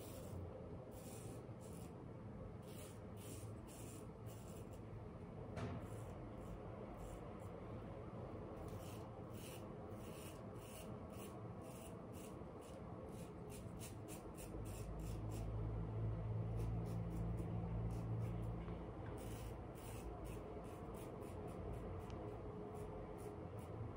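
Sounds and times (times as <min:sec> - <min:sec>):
razor scraping stubble: 0:02.6 - 0:04.8, 0:08.6 - 0:15.6, 0:19.2 - 0:22.2.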